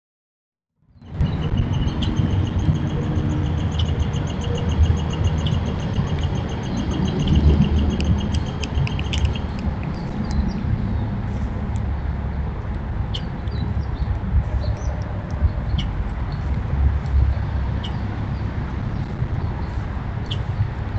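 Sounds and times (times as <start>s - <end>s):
loud low rumble: 1.1s - 20.9s
rapid high bird chips: 1.6s - 10.4s.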